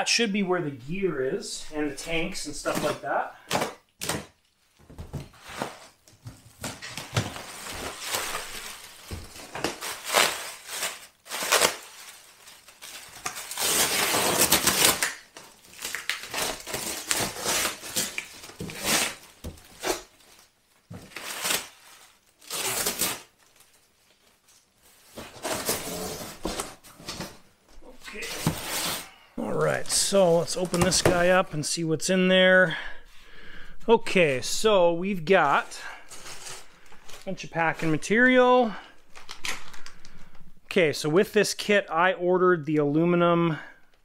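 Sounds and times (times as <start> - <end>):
cardboard scraping and rustling: 24.9 - 27.4, 28.0 - 29.1.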